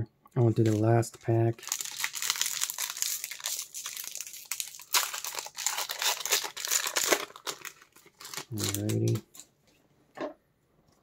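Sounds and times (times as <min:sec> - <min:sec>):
foil wrapper crinkling and tearing: 0:01.5 - 0:09.4.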